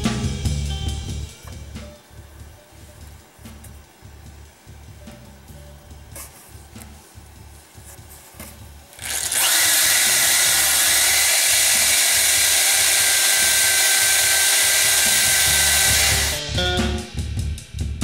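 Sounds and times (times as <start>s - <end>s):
abrasive wheel grinding leather: 9.0s - 16.4s.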